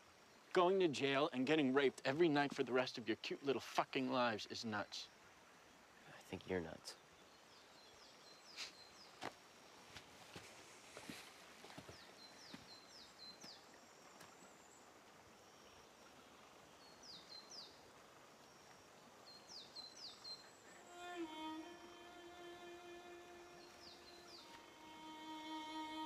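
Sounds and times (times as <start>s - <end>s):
faint outdoor ambience: 0.0s - 26.0s
small bird chirping: 19.3s - 26.0s
held music chord: 20.8s - 26.0s.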